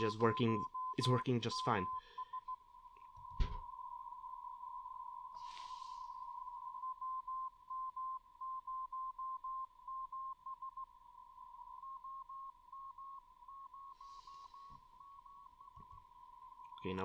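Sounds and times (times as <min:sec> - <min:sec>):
morse code tone: 0:00.0 - 0:02.6
faint steady carrier tone: 0:00.0 - 0:17.0.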